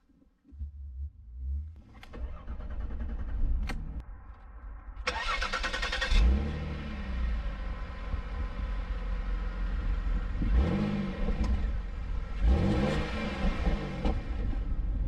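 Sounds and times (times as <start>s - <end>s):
car engine starting and idling: 0.1s - 4.4s, 5.0s - 15.0s
ignition clicks: 1.8s - 4.0s.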